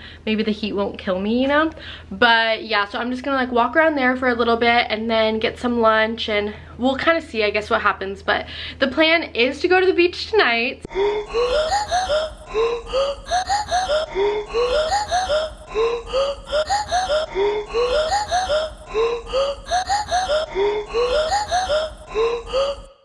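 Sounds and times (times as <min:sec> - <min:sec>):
looping rising synth notes: 0:11.3 - 0:22.2.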